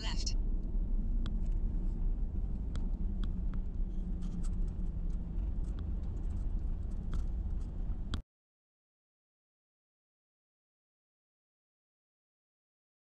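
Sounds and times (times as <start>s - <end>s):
tyres and engine rumble: 0.0s - 8.2s
gravel clicks and ticks: 0.6s - 8.2s.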